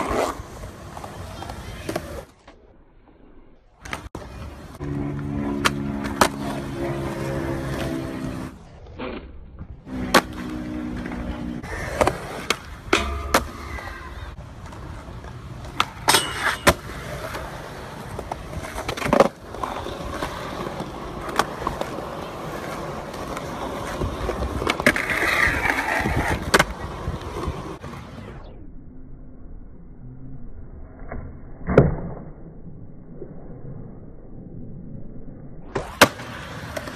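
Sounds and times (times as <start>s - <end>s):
skateboard wheels rolling on concrete: 0.0s - 28.6s, 35.6s - 36.9s
skateboard tail pops and landings: 35.7s - 36.9s.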